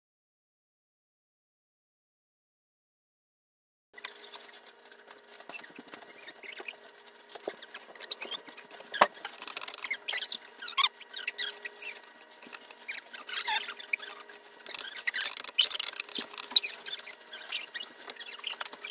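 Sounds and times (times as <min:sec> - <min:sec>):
squeaky scrapes: 0:04.0 - 0:18.9.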